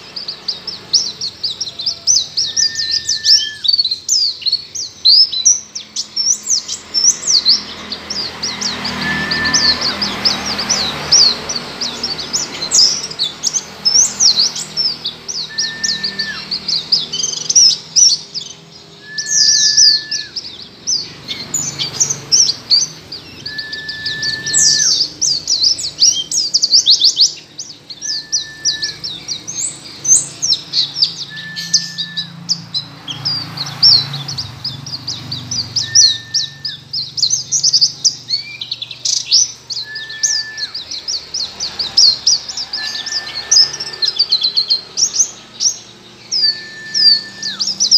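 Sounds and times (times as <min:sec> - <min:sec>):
bird twittering song: 0:00.0 - 0:47.9
lower whistled bird note: 0:01.1 - 0:03.9, 0:08.1 - 0:12.0, 0:15.4 - 0:16.8, 0:19.0 - 0:20.6, 0:23.2 - 0:25.6, 0:27.9 - 0:29.4, 0:30.7 - 0:32.5, 0:35.8 - 0:37.0, 0:39.7 - 0:44.8, 0:46.3 - 0:47.9.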